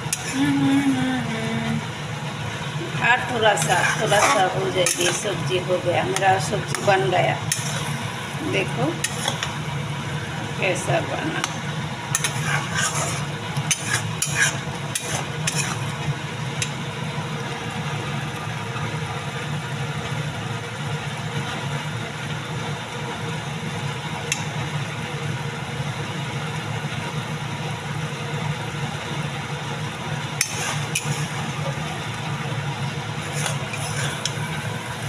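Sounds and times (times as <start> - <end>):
low hum: 0.0 - 22.5
food sizzling: 0.0 - 35.0
metal spatula scraping pan: 0.1 - 0.4, 3.2 - 9.6, 12.1 - 16.0, 30.4 - 31.7, 33.2 - 34.8.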